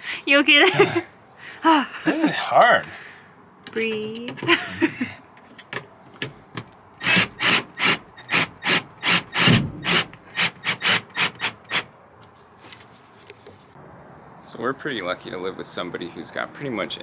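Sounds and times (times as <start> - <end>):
cordless drill drilling wood: 7.0 - 11.9.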